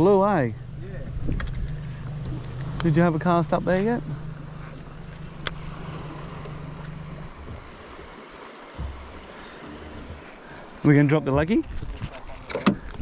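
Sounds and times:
water lapping: 0:00.0 - 0:13.0
wind: 0:00.0 - 0:13.0
electric motor humming: 0:00.6 - 0:08.1.

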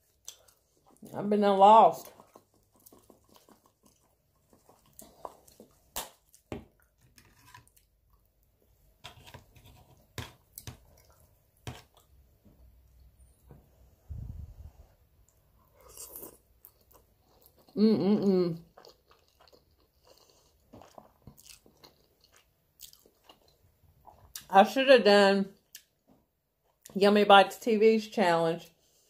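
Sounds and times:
chewing: 0:00.0 - 0:01.1, 0:02.0 - 0:08.3, 0:09.1 - 0:12.2, 0:15.3 - 0:17.8, 0:18.6 - 0:24.5.

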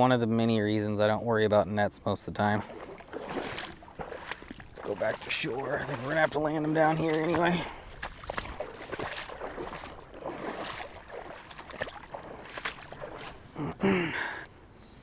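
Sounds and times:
footsteps splashing in water: 0:02.5 - 0:14.4.

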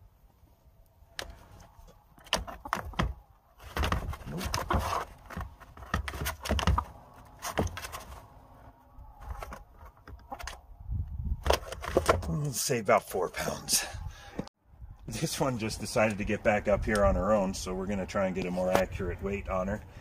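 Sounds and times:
chicken scratching in cardboard box: 0:03.6 - 0:08.4.

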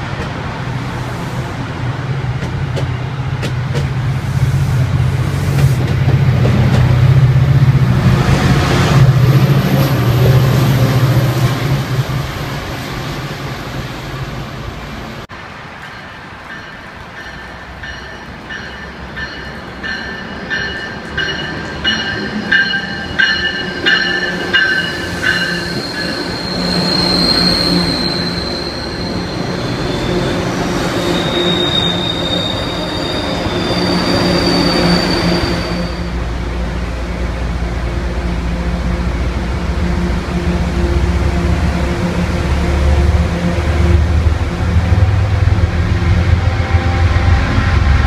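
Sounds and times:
low train rumble: 0:00.0 - 0:48.0
train bell ringing: 0:15.8 - 0:27.4
train wheels squealing: 0:16.6 - 0:36.2.

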